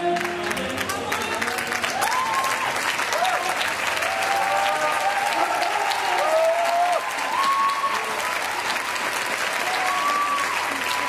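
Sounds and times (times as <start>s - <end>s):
audience applauding: 0.0s - 11.0s
crowd cheering: 0.0s - 11.0s.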